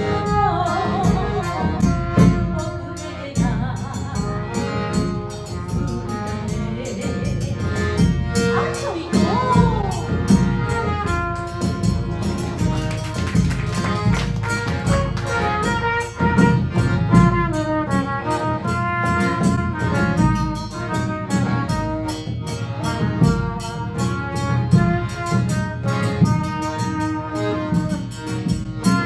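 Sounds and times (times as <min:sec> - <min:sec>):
accordion: 0:00.0 - 0:29.0
bass drum and drums beating: 0:00.0 - 0:29.0
trumpet melody: 0:08.3 - 0:28.2.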